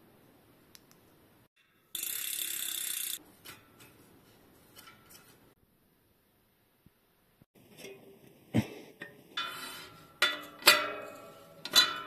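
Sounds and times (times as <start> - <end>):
metallic clicks and scrapes: 1.6 - 5.6, 9.3 - 12.0
mechanical ratcheting buzz: 1.9 - 3.2.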